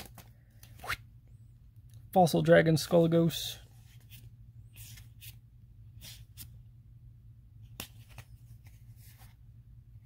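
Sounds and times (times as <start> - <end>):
low steady hum: 0.0 - 10.0
trading cards swishing and clicking: 7.7 - 9.4.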